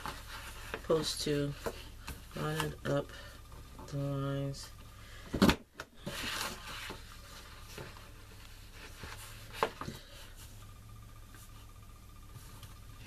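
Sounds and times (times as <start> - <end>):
cardstock sliding and rustling: 6.0 - 10.0.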